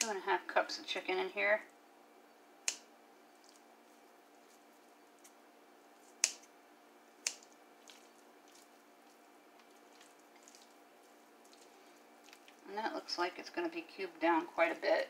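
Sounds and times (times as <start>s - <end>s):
faint hum: 0.0s - 15.0s
kitchen shears snipping: 2.6s - 3.6s, 6.0s - 6.5s, 7.2s - 8.7s.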